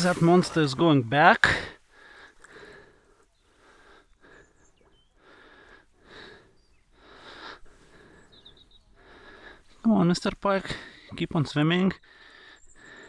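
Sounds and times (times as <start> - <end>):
soft breathing: 1.4 - 9.9, 12.0 - 13.0.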